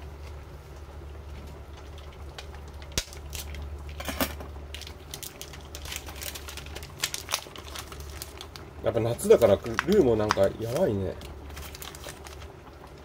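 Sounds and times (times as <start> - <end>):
steady low hum: 0.0 - 13.0
plastic packet crinkling: 2.0 - 4.0, 4.7 - 13.0.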